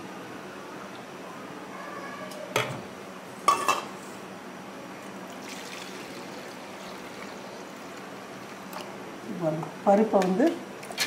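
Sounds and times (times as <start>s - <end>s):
water pouring into a bowl: 5.3s - 8.8s.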